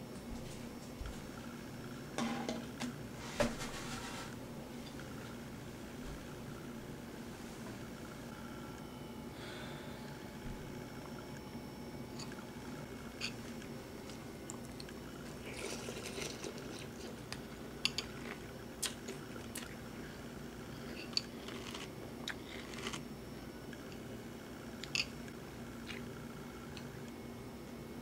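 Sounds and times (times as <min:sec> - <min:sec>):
low room hum: 0:00.0 - 0:28.0
crunchy chewing: 0:20.8 - 0:23.1.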